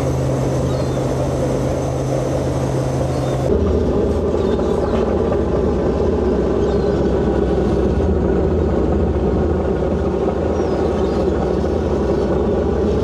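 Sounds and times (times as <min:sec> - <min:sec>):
diesel engines droning: 0:00.0 - 0:13.0.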